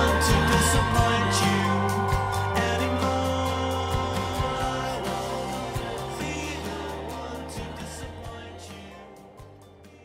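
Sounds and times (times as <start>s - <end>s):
instrumental music with held chords: 0.0s - 10.0s.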